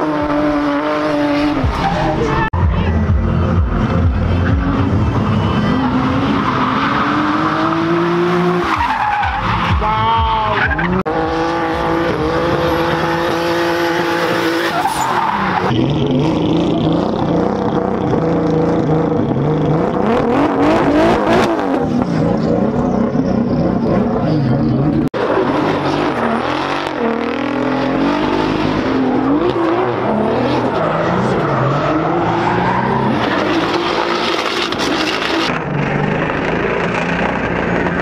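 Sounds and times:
car engines revving: 0:00.0 - 0:38.0
tyres skidding: 0:00.0 - 0:38.0.

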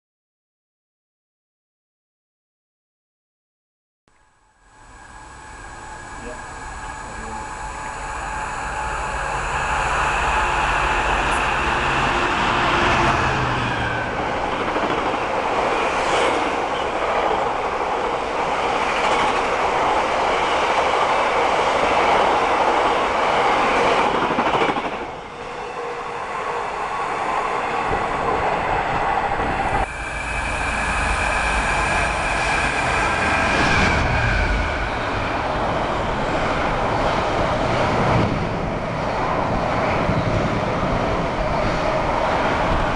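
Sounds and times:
diesel locomotive passing: 0:04.6 - 0:42.9
train wheels rumbling over rails: 0:05.6 - 0:42.9.

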